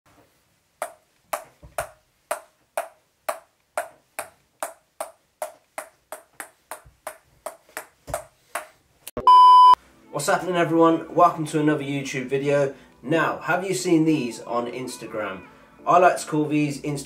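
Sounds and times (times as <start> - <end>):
ball bouncing on paddle: 0.8 - 8.7.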